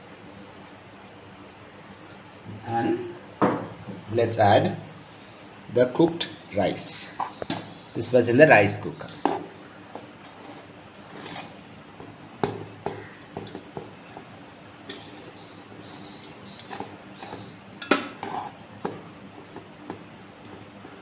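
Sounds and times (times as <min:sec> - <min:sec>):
spoon scraping pot: 0:18.1 - 0:18.6.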